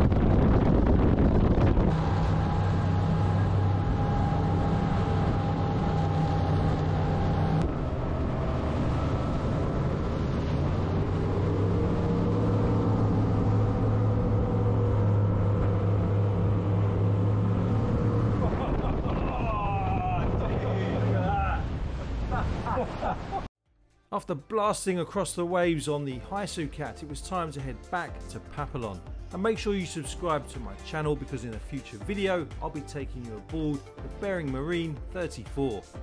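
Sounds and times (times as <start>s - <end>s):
rushing wind and water: 0.0s - 23.5s
boat engines droning: 1.5s - 23.5s.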